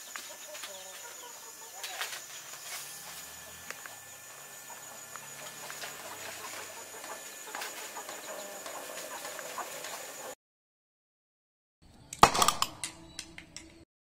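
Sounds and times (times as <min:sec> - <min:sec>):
faint bird calls: 0:00.0 - 0:10.4
high-pitched whine: 0:00.0 - 0:10.4
low hum: 0:02.2 - 0:09.8.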